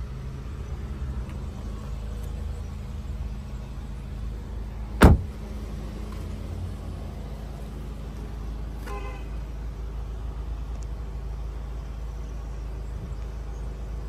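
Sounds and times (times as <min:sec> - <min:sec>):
car door shutting: 0:05.0 - 0:05.4.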